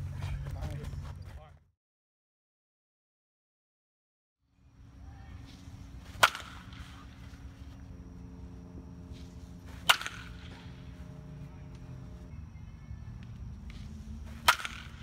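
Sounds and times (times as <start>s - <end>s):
bat hitting baseball: 6.1s - 7.1s, 9.7s - 10.7s, 14.2s - 15.0s.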